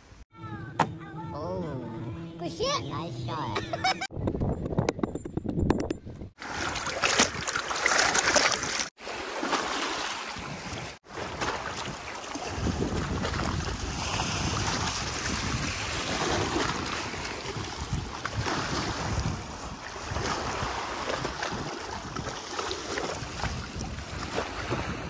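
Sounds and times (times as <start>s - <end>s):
wind buffeting microphone: 3.9s - 6.4s, 11.6s - 25.0s
waves lapping on pebbles: 6.4s - 25.0s.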